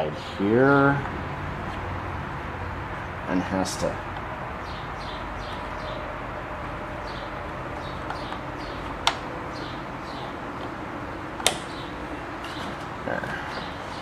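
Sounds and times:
sharp metallic click: 11.4s - 11.7s.

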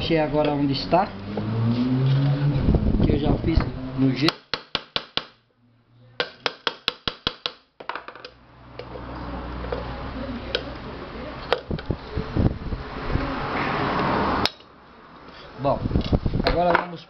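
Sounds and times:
steady rushing noise: 1.1s - 4.2s
hammer striking metal chisel: 4.2s - 5.4s, 6.2s - 7.7s.

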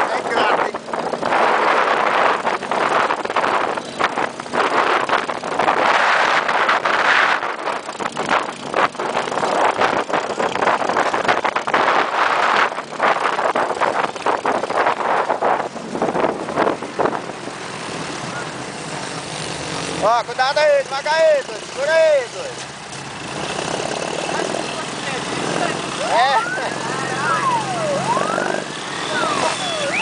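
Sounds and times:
wind buffeting microphone: 0.0s - 18.4s
off-road vehicle driving: 0.0s - 30.0s.

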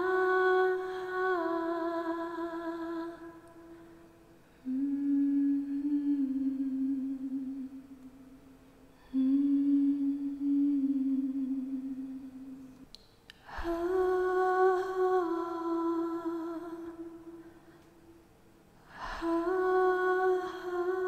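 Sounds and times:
woman humming long notes: 4.6s - 8.0s, 9.0s - 12.6s.

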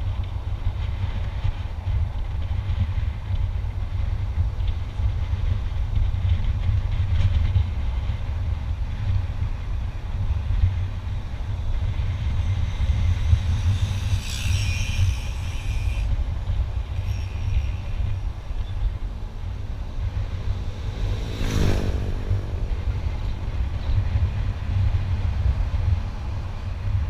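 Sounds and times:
vehicle engine and tyres rumble: 0.0s - 27.0s
wind buffeting microphone: 0.0s - 27.0s
high hiss: 13.1s - 16.2s.

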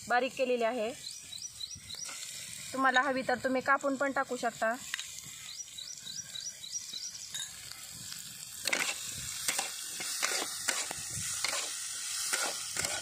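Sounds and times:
potatoes sizzling in a pan: 0.0s - 13.0s
metal spatula scraping a pan: 8.6s - 13.0s.

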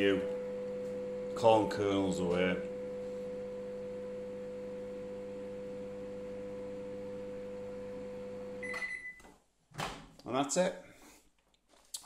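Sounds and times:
microwave oven humming: 0.0s - 9.1s.

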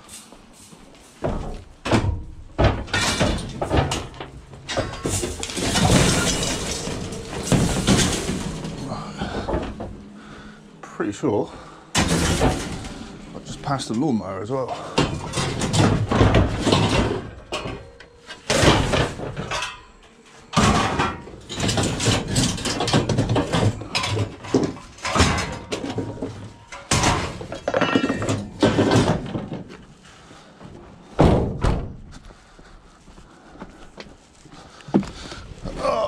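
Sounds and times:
metal clanking on metal: 1.2s - 10.5s, 11.6s - 29.7s
heavy thuds: 1.2s - 10.6s, 11.4s - 13.8s, 20.6s - 32.8s.

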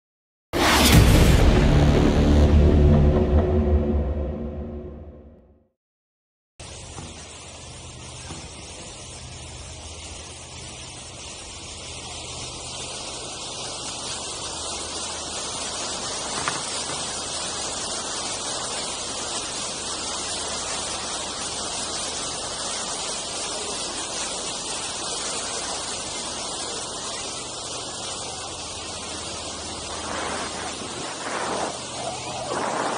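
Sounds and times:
water rushing along boat hull: 6.6s - 32.9s
wind noise: 29.7s - 32.9s.

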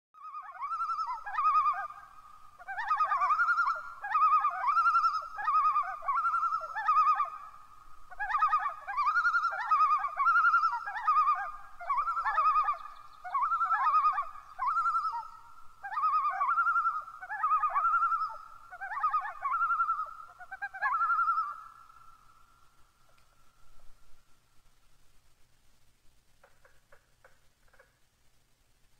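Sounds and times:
loon calling: 0.2s - 22.3s.

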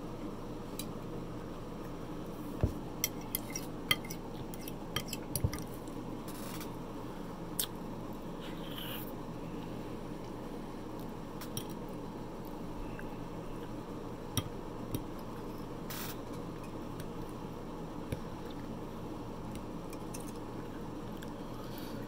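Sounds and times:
steady low hum: 0.0s - 22.0s
soft chewing: 0.8s - 6.1s, 7.4s - 22.0s
fork clicking against plate: 3.0s - 5.6s.

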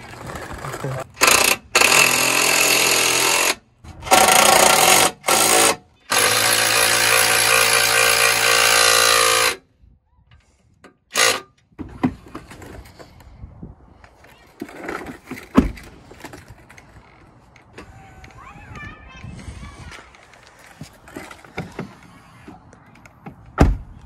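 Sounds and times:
cordless power tool driving bolts: 0.0s - 9.6s, 11.1s - 13.1s.

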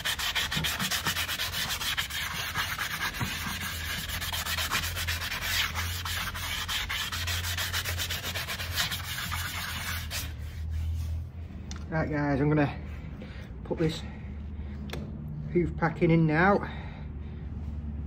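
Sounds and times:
brush scrubbing a hoof: 0.0s - 11.4s.

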